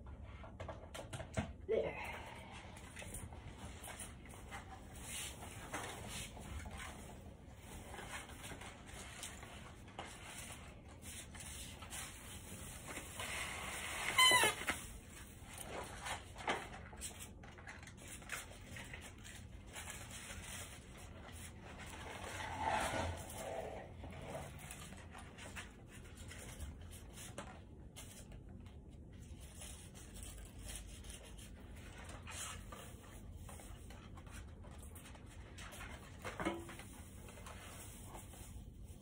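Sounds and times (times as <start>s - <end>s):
rustling artificial tree branches: 29.1s - 39.0s.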